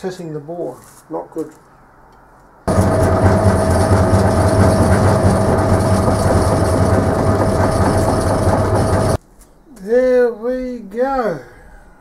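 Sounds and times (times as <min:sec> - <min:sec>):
machine whine: 0:02.7 - 0:09.2
mechanical clatter: 0:02.7 - 0:09.2.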